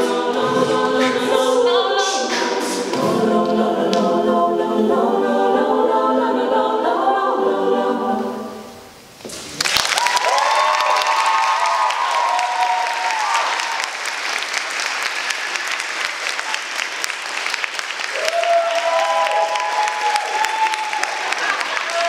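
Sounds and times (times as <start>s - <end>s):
audience applauding: 9.5s - 22.0s
whooping cheers: 9.8s - 14.0s, 18.1s - 22.0s.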